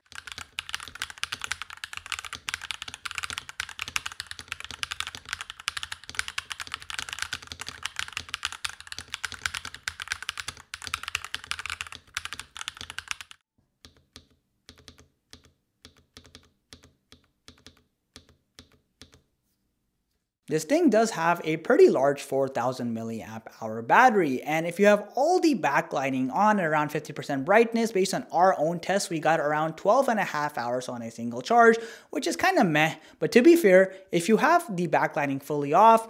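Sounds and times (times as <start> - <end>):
fast typing on mechanical keyboard: 0.0 - 19.2.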